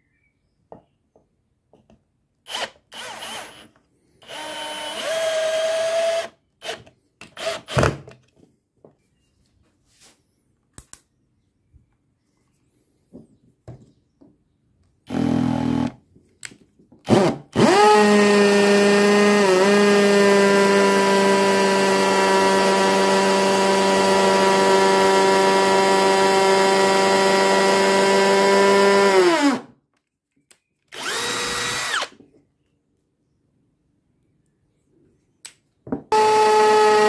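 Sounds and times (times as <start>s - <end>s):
hammer drill drilling into brick: 2.5s - 6.8s, 17.1s - 29.7s, 30.9s - 32.2s, 36.1s - 37.0s.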